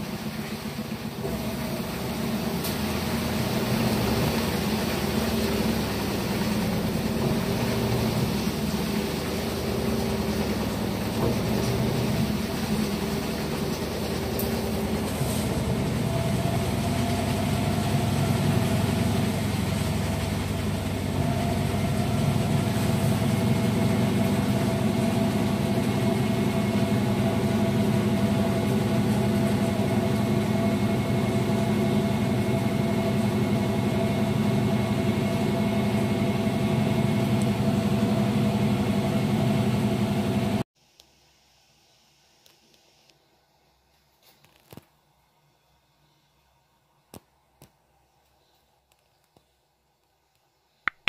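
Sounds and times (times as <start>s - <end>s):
washing machine spinning: 0.0s - 40.7s.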